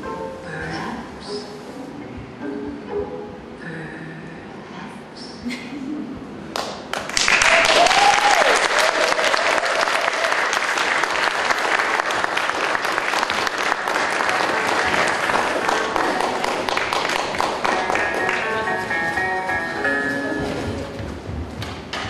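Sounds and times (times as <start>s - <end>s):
music: 0.0s - 3.6s, 13.4s - 22.0s
audience clapping: 6.5s - 19.4s
audience cheering: 7.2s - 12.8s.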